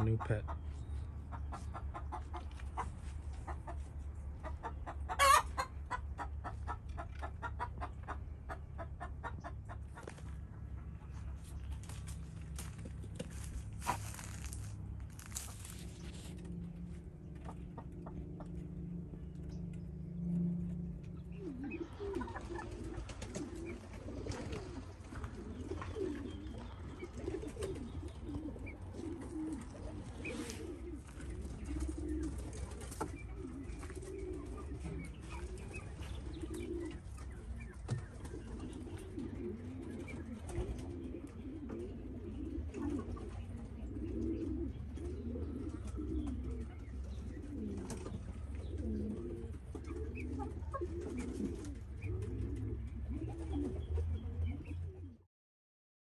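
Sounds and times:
birds cooing: 0:00.0 - 0:55.2
steady low drone: 0:11.0 - 0:23.2.

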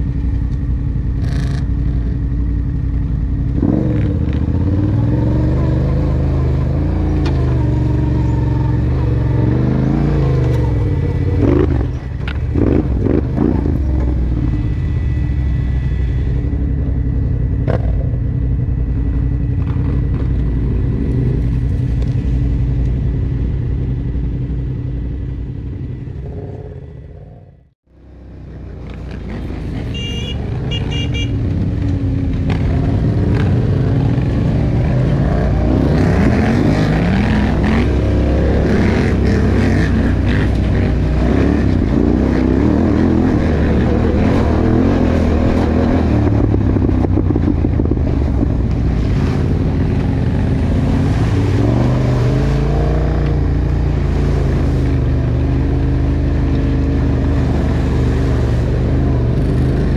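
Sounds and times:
atv engine running: 0:00.0 - 0:59.9.

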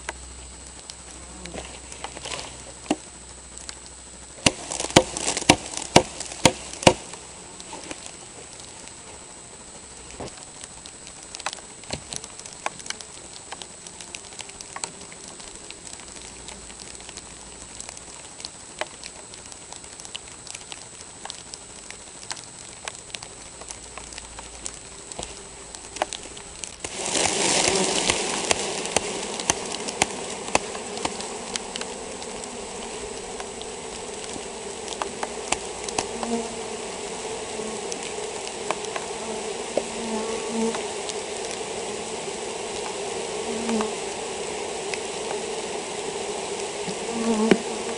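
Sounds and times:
honeybees buzzing: 0:00.0 - 0:47.9
light ticks: 0:43.6 - 0:44.0.

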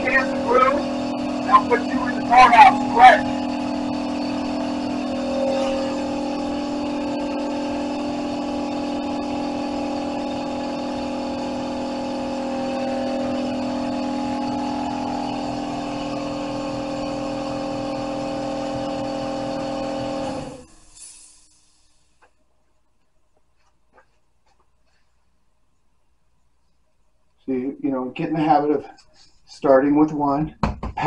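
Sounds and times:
steady higher tones: 0:00.0 - 0:16.2
motor drone: 0:00.0 - 0:21.3.

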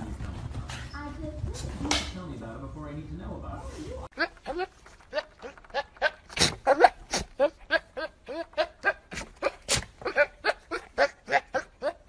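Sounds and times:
goat bleating: 0:04.2 - 0:12.0.

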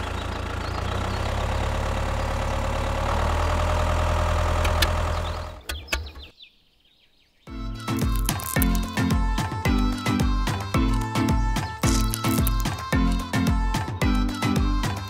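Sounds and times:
tractor engine chugging: 0:00.0 - 0:05.7
sharp clicks: 0:07.8 - 0:09.0, 0:10.5 - 0:13.9.

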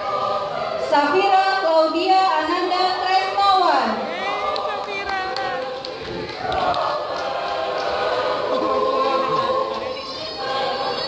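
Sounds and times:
choir singing held notes: 0:00.0 - 0:11.0.

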